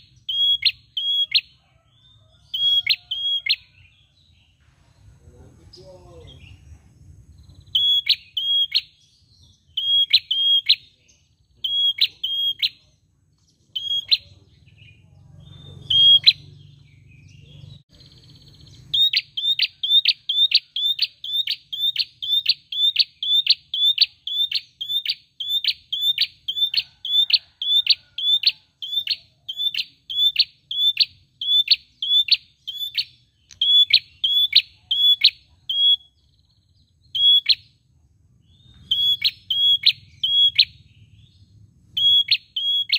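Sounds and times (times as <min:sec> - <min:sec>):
bird chirping high and sharp: 0:00.0 - 0:04.0, 0:07.4 - 0:37.8, 0:38.4 - 0:42.9.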